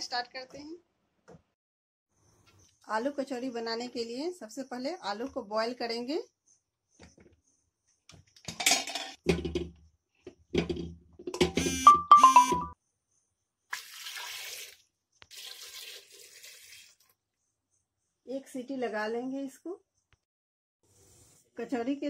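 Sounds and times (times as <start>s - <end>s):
potatoes thudding into metal pot: 8.5s - 9.8s
water pouring into a pot: 13.7s - 17.1s.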